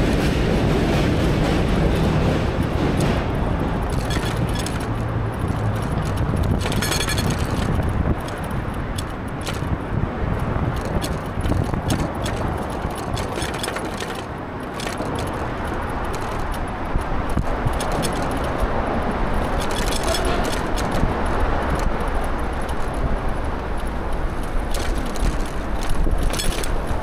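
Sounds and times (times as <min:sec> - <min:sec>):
bike rattling and clicking: 0:00.0 - 0:27.0
road and traffic rumble: 0:00.0 - 0:27.0.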